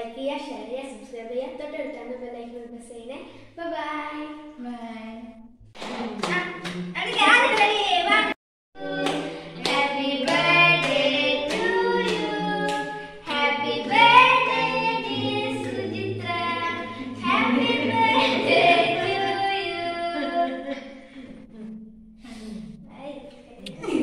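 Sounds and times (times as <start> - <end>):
hands clapping in time: 5.8 - 7.9, 8.8 - 16.4
group singing a birthday song: 5.8 - 21.5.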